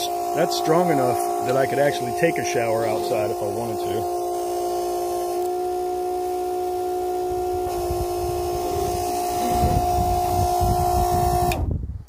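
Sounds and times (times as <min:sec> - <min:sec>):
water pump whining: 0:00.0 - 0:11.7
loud rumbling noise: 0:05.9 - 0:11.7.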